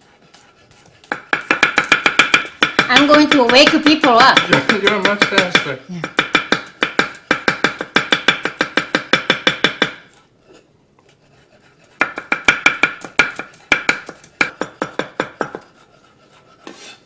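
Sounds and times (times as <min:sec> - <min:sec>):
knife chopping on wooden board: 0:00.7 - 0:10.1, 0:12.0 - 0:15.8.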